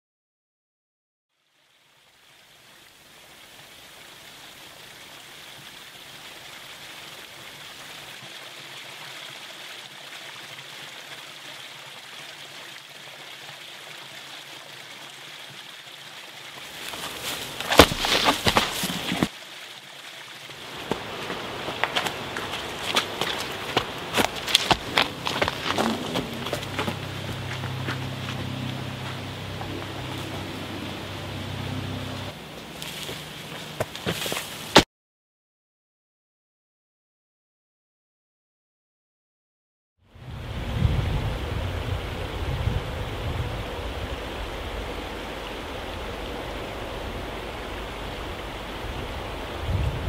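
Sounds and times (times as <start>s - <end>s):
stream trickling over rocks: 1.3s - 34.8s
footsteps on dry grass and twigs: 16.6s - 19.3s, 20.7s - 30.5s, 32.6s - 34.8s.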